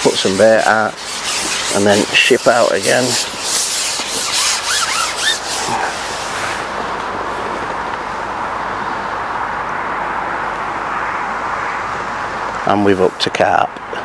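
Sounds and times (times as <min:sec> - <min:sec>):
fishing pole rasping through hands: 0:00.0 - 0:06.7
steady even hiss: 0:00.0 - 0:14.0.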